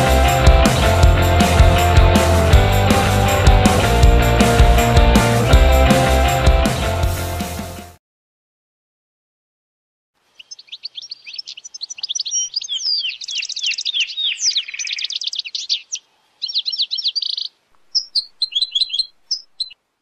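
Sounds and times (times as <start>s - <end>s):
canary singing: 10.3s - 19.8s.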